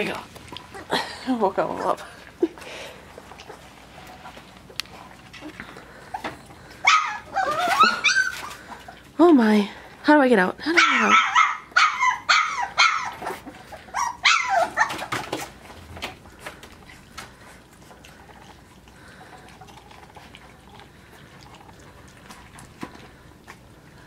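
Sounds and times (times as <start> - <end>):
puppies lapping from metal pan: 0.0 - 11.4, 12.0 - 24.0
puppy yelping: 6.8 - 8.9, 10.8 - 15.3.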